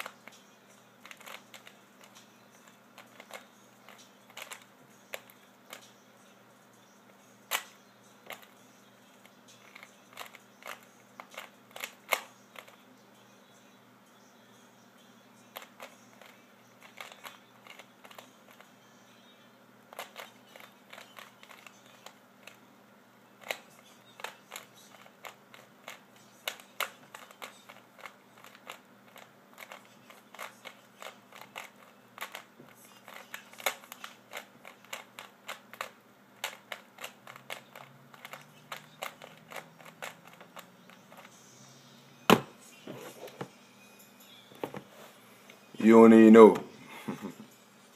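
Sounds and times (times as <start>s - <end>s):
puzzle cube clicking: 1.0s - 2.2s, 3.0s - 5.8s, 7.5s - 8.5s, 9.6s - 12.8s, 15.5s - 18.6s, 19.9s - 22.6s, 23.4s - 41.3s.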